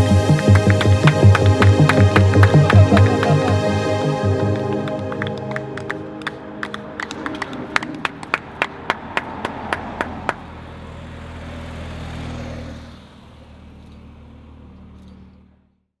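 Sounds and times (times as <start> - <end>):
person clapping: 0.0 - 10.5
car passing: 0.0 - 15.8.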